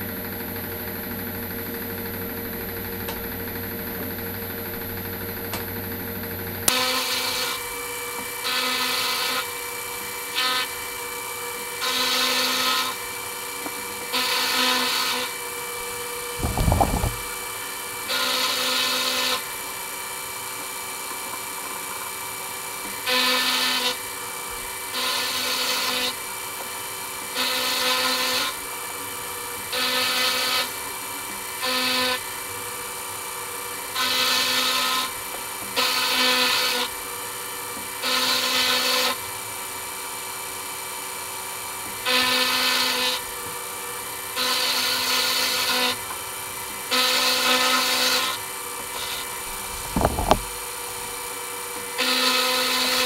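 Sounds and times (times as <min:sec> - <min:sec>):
cutter cutting metal: 0:14.2 - 0:17.5, 0:46.8 - 0:53.0
sharp knock: 0:16.4 - 0:17.3, 0:49.7 - 0:50.5.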